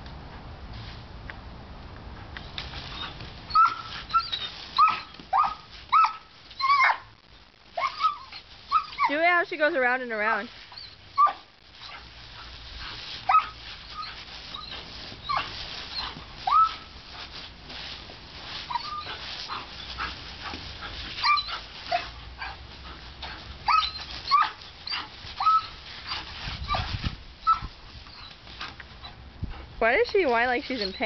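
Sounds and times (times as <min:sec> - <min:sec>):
puppy whining and yelping: 0:02.9 - 0:07.1, 0:07.8 - 0:09.1, 0:10.7 - 0:12.0, 0:13.3 - 0:17.0, 0:18.7 - 0:20.2, 0:21.2 - 0:22.6, 0:23.6 - 0:28.4.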